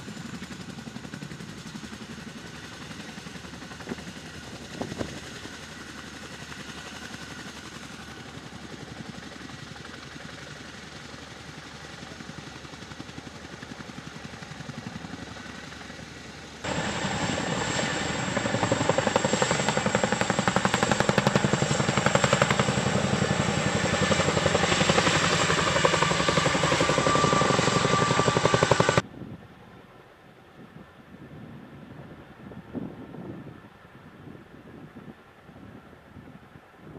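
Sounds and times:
helicopter rotors turning: 0:00.0 - 0:29.0
rapid helicopter rotor beat: 0:00.0 - 0:29.0
high turbine whine: 0:16.2 - 0:29.2.

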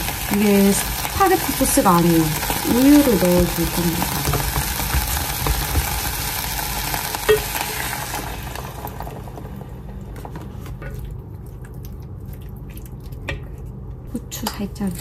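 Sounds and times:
bacon sizzling in a frying pan: 0:00.0 - 0:10.0.

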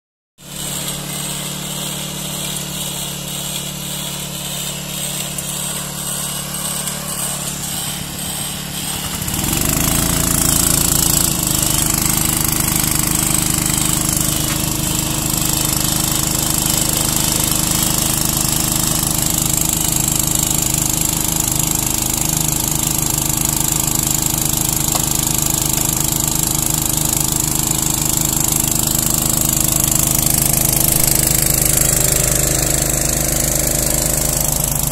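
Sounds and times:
drilling rig machinery: 0:00.4 - 0:34.9
deep engine note: 0:28.9 - 0:34.9.

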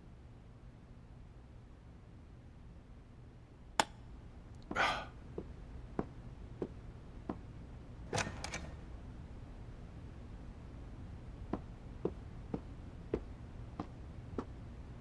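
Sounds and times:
soft footsteps: 0:04.6 - 0:07.5, 0:11.4 - 0:14.6
door pushed open with clicks: 0:08.1 - 0:08.8.

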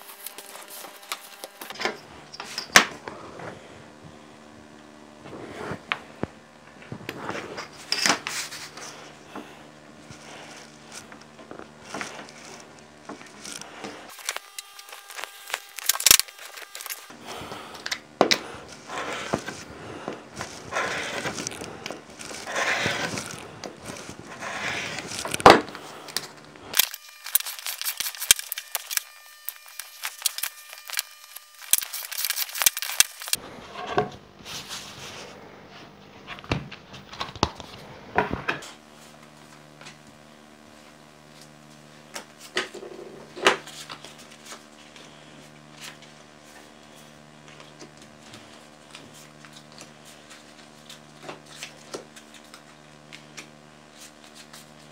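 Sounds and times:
paper and card rustling: 0:00.0 - 0:01.9, 0:07.2 - 0:33.4, 0:43.4 - 0:54.9
steady low hum: 0:00.0 - 0:54.9
rotary cutter rolling through card: 0:10.1 - 0:33.4.

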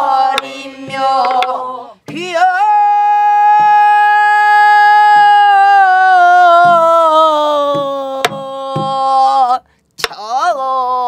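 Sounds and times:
woman singing long notes: 0:00.0 - 0:09.6
barrel drum strokes: 0:00.3 - 0:02.4.

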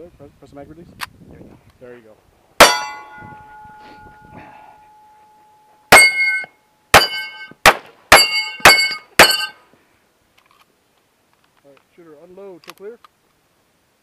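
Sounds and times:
bullet ringing on steel target: 0:02.6 - 0:09.6
pistol shots: 0:05.9 - 0:09.5.

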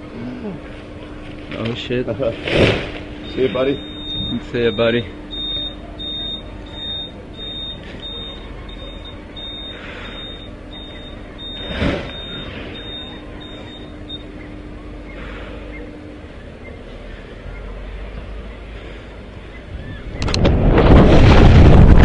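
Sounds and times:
steady low hum: 0:00.0 - 0:22.0
high-pitched electronic beeping: 0:03.2 - 0:14.5.

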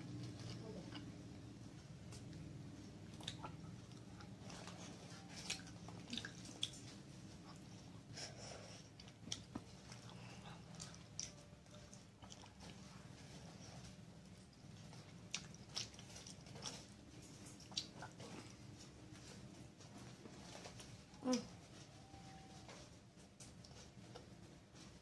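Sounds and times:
person chewing wet mouth sounds: 0:00.0 - 0:19.0.

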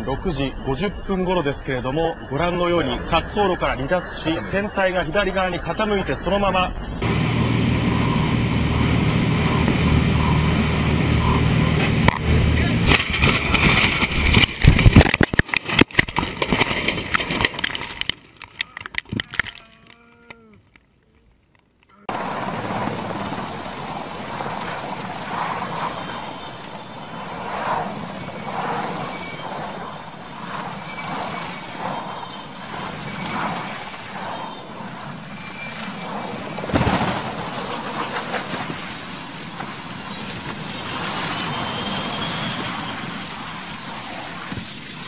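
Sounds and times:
helicopter high whine: 0:07.0 - 0:17.7, 0:22.1 - 0:45.0
loud crash: 0:11.8 - 0:18.1, 0:35.4 - 0:42.6.

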